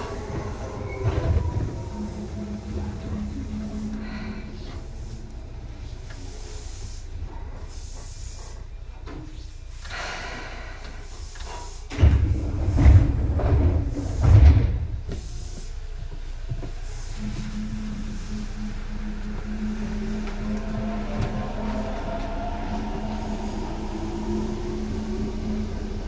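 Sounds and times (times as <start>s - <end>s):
train thuds and rumbling: 0.0s - 5.7s, 11.6s - 26.0s
steady train hum: 0.0s - 26.0s.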